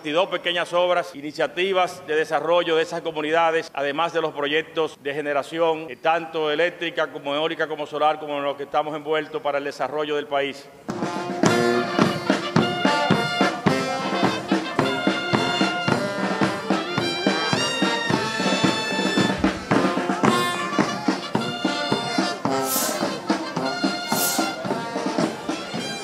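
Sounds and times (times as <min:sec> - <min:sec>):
brass instrumental music: 0:10.9 - 0:26.0.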